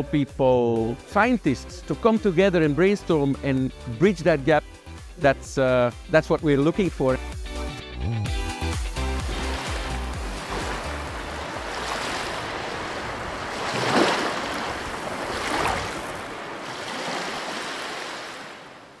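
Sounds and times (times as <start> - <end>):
ocean surf washing in: 9.0 - 19.0.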